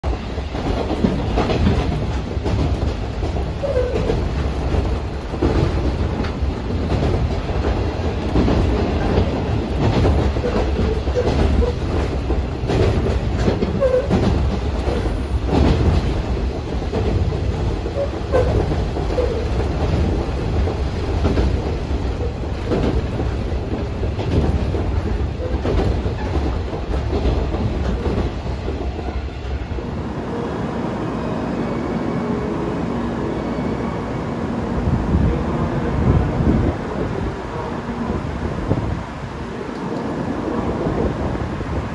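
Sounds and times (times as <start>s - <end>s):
track clacks: 0.0s - 30.2s
train rumbling on rails: 0.0s - 41.9s.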